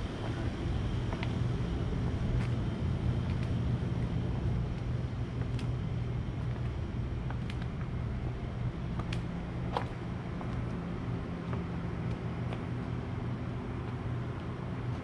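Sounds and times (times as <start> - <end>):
engine humming: 0.0 - 15.0.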